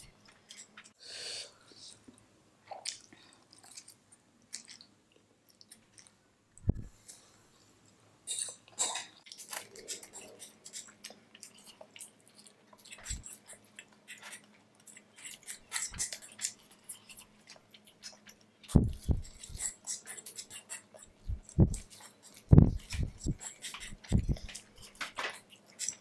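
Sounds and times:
chewing noodles: 8.3 - 26.0.

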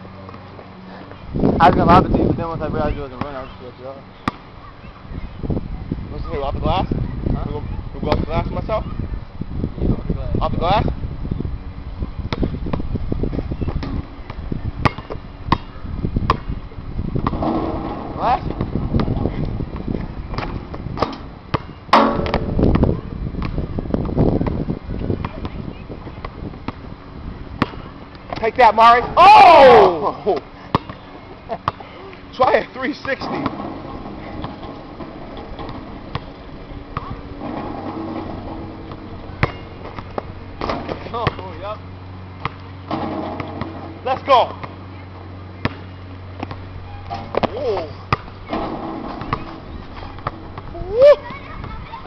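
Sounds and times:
steady low hum: 0.0 - 52.0
low rumble of thumps: 5.2 - 28.4, 33.2 - 44.8, 45.6 - 52.0
basketball bouncing: 13.7 - 15.7, 17.2 - 19.3, 20.2 - 23.6, 30.7 - 31.0, 32.9 - 41.5, 42.4 - 44.8, 45.6 - 51.8.

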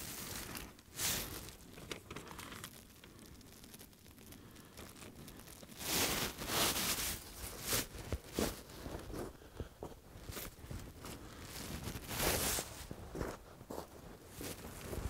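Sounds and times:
paper napkin crinkling: 0.0 - 8.9
dry leaves rustling underfoot: 0.0 - 9.4, 10.2 - 15.0.

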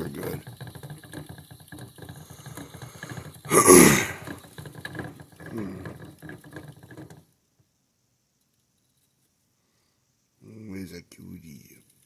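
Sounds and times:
plastic hamster wheel rattling: 0.0 - 7.4
person's falling vocal sound: 3.5 - 4.2.

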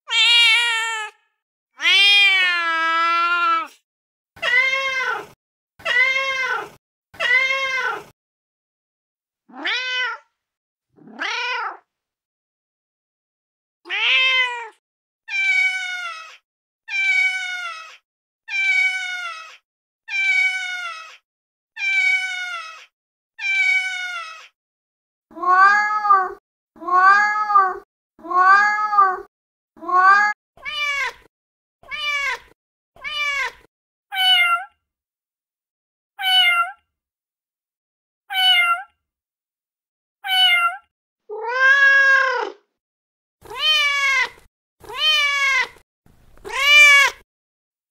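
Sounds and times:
recorded cat meows: 0.0 - 3.8, 4.4 - 8.1, 9.5 - 10.4, 11.0 - 12.0, 13.8 - 21.2, 21.8 - 24.6, 25.3 - 34.8, 36.2 - 36.9, 38.3 - 39.0, 40.2 - 42.7, 43.4 - 45.8, 46.4 - 47.2.

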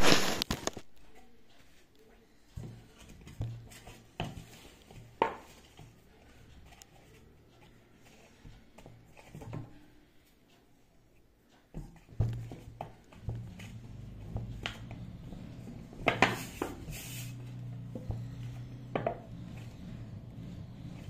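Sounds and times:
dough knocking in metal bowl: 18.0 - 19.3.

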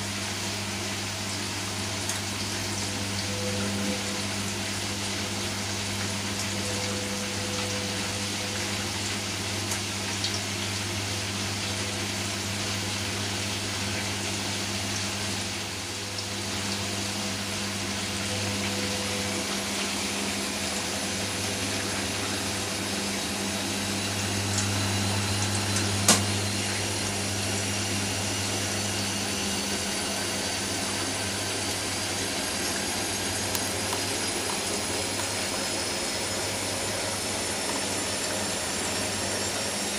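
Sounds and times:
washing machine motor and drum hum: 0.0 - 39.9
rising spin whine: 15.9 - 30.5.

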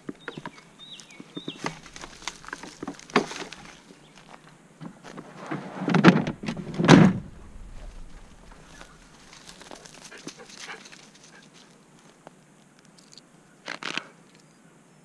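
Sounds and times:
footsteps in dry grass: 0.0 - 5.3, 6.4 - 12.6
loud scuffing thumps: 1.4 - 10.4.

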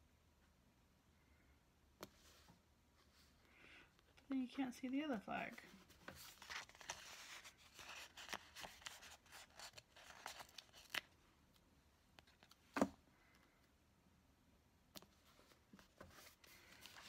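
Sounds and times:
paper stickers rustling: 5.7 - 11.2, 16.0 - 17.0.

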